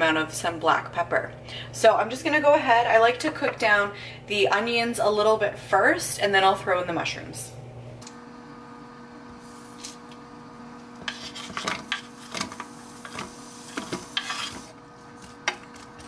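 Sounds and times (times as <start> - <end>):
steady low hum: 0.0 - 16.0
spatula scraping wooden board: 11.0 - 12.5, 13.7 - 14.7.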